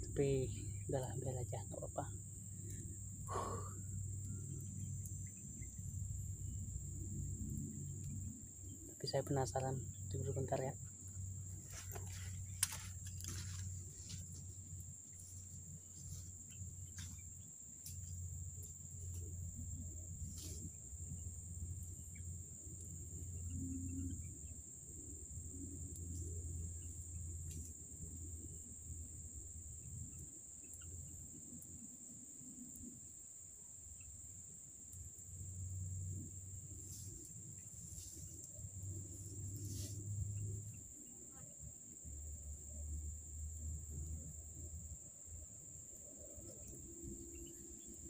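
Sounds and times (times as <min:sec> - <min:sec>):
forest insects droning: 0:00.0 - 0:48.0
sharp crackles and snaps: 0:11.8 - 0:13.7.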